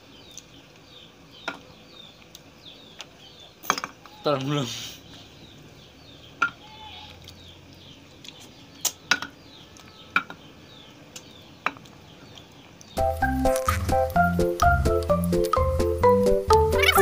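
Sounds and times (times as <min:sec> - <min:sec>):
background music with a beat: 0:13.0 - 0:16.9.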